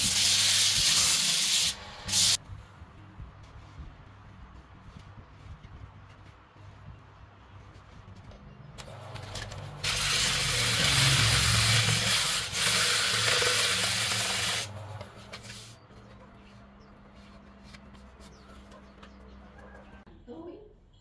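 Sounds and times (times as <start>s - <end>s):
sandpaper hissing on wood: 0.0s - 2.4s, 9.8s - 14.7s.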